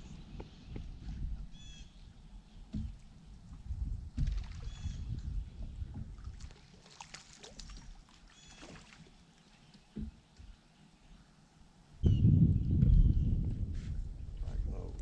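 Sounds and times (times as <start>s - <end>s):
wind rumbling on microphone: 0.0s - 6.6s, 12.0s - 15.0s
bird calling: 1.5s - 2.0s, 8.3s - 8.8s
dull thump: 2.7s - 3.1s.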